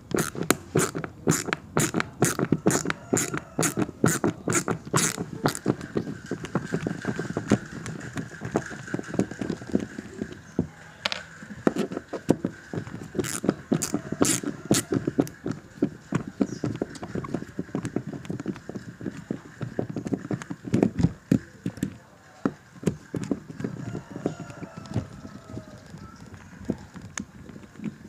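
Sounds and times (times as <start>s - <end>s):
ratchet screwdriver clicking: 0.1s - 5.6s.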